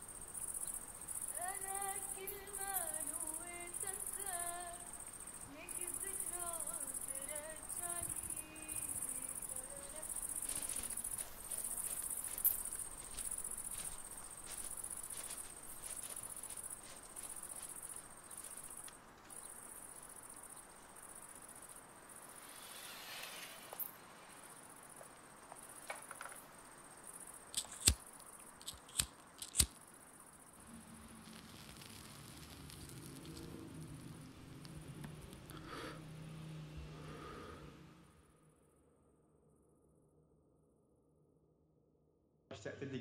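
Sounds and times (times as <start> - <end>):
insects chirping: 0.0 - 40.2
sharp clicks: 27.5 - 29.8.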